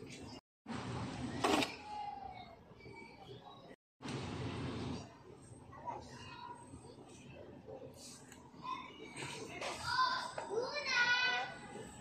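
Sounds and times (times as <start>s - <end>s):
distant voices of shoppers: 0.0s - 12.0s.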